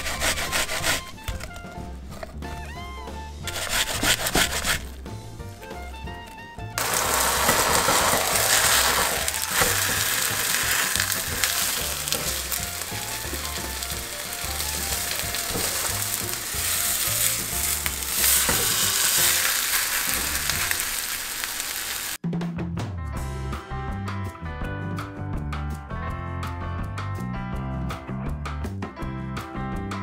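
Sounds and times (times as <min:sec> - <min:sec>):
background music with bass line: 0:00.0 - 0:19.3, 0:22.2 - 0:30.0
spatula clicks and scrapes: 0:06.8 - 0:14.0
pancake sizzling in oil: 0:06.8 - 0:22.2.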